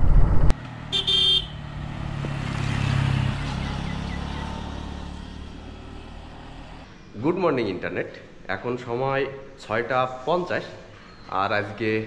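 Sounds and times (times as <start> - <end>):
motorcycle engine passing by: 0.6 - 6.8.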